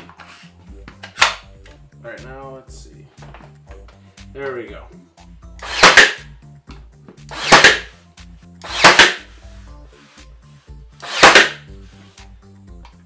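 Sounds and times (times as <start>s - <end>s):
background music with low notes: 0.0s - 13.0s
brad nailer firing: 5.6s - 6.3s, 7.3s - 8.0s, 8.6s - 9.3s, 11.0s - 11.7s.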